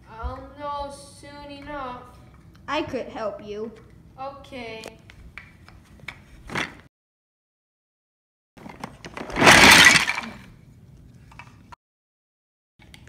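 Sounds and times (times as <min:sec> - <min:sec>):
wooden toy track pieces rattling: 0:08.8 - 0:10.4.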